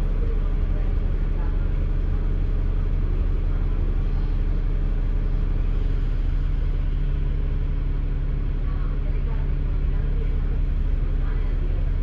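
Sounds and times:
bus engine droning: 0.0 - 12.0.

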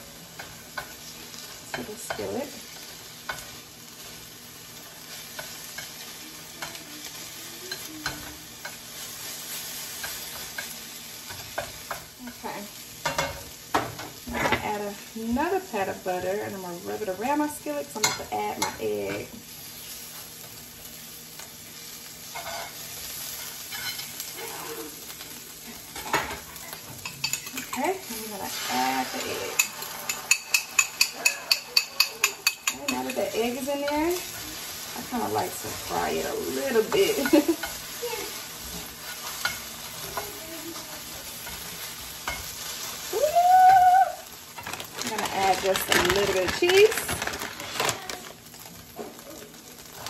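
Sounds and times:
butter sizzling in a skillet: 0.0 - 50.0
spatula scraping a pan: 22.2 - 25.0, 25.7 - 43.1.

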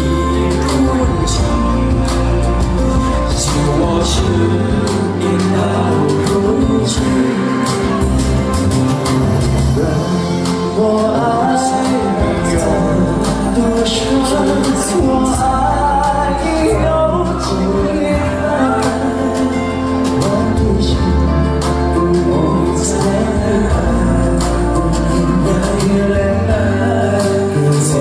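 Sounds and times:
melodic instrumental accompaniment: 0.0 - 28.0
two men singing pop duet: 0.0 - 28.0.

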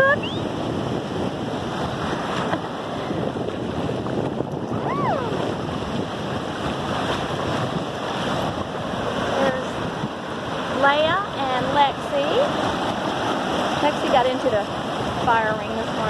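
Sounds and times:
ocean surf washing onto beach: 0.0 - 16.0
wind buffeting microphone: 0.0 - 16.0
brief high cry: 4.8 - 5.4.

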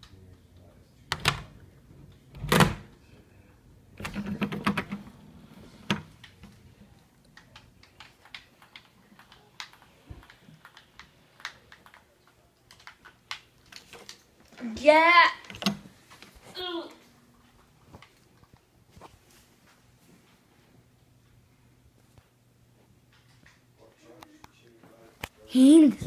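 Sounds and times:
small irregular clicks and taps: 5.8 - 14.6, 23.1 - 24.6.

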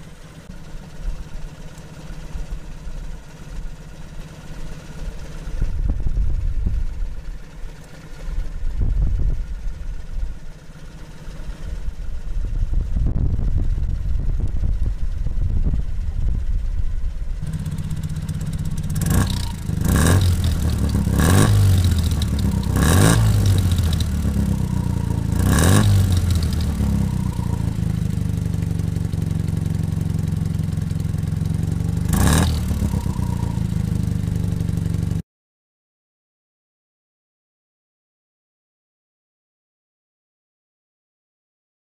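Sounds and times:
car engine idling: 0.0 - 35.2
engine revving: 17.4 - 35.2.

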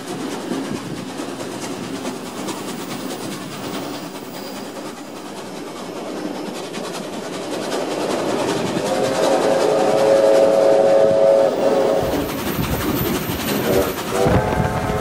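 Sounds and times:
train carriages clattering: 0.0 - 15.0
train horn chord: 8.9 - 12.2, 13.6 - 15.0.

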